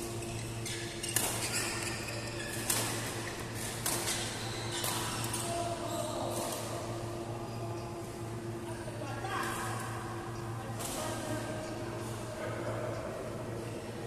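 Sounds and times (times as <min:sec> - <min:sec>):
rackets hitting shuttlecock: 0:01.0 - 0:01.7, 0:02.5 - 0:05.6.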